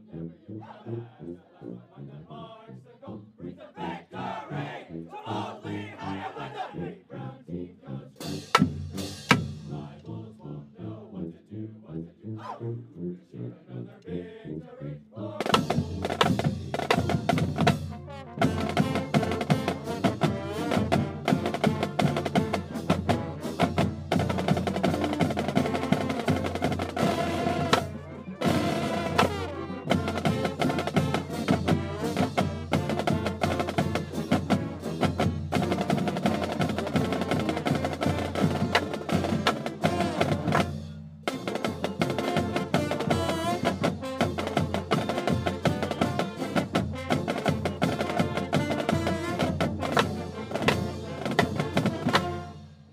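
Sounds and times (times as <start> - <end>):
marching band playing: 3.5 - 10.0, 15.2 - 52.9
drum line: 8.2 - 9.9, 15.4 - 52.6.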